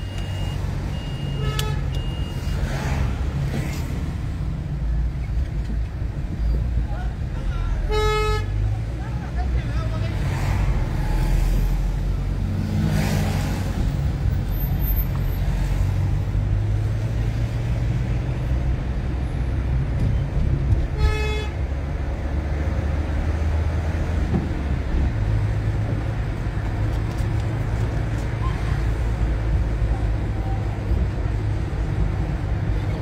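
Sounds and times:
car engine and road noise: 0.0 - 33.0
car horn toot: 1.0 - 2.3, 7.9 - 8.6, 20.9 - 21.6.

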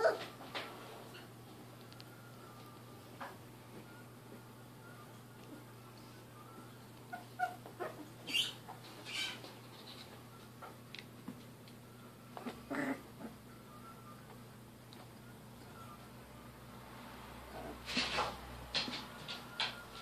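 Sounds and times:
puppies squeaking and yipping: 0.0 - 0.3, 7.1 - 10.0.

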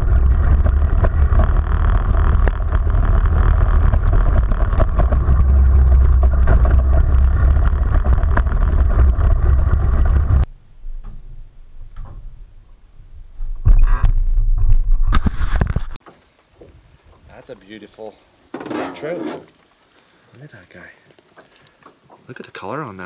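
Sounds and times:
atv engine droning: 0.0 - 10.5
faint high whine: 7.0 - 15.2.

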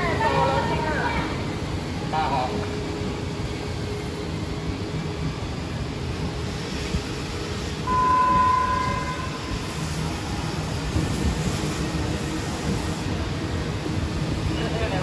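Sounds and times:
train carriages rumbling: 0.0 - 15.0
train horn: 7.9 - 9.5.

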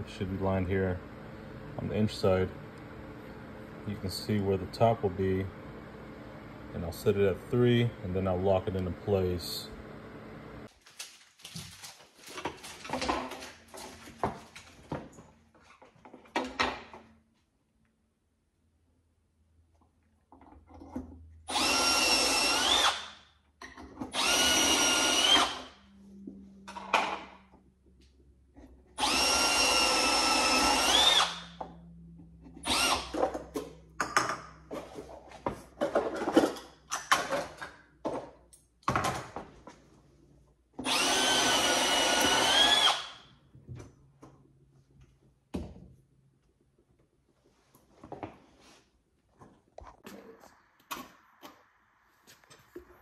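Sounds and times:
cordless drill running: 21.5 - 23.2, 24.1 - 25.8, 29.0 - 31.6, 32.6 - 33.2, 40.8 - 43.3.

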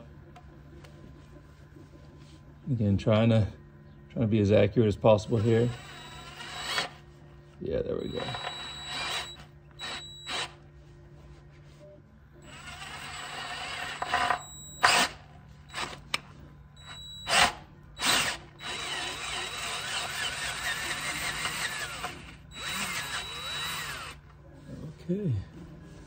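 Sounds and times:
cordless drill drilling aluminium: 5.2 - 7.0, 8.0 - 10.6, 12.4 - 16.0, 16.8 - 24.2.

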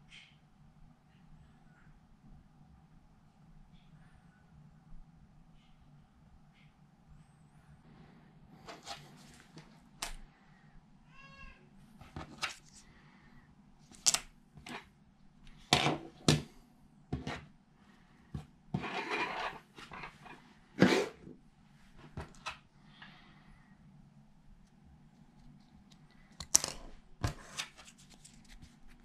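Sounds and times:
short meow-like cry: 11.1 - 11.7
objects tapping on a desk: 17.1 - 17.4.

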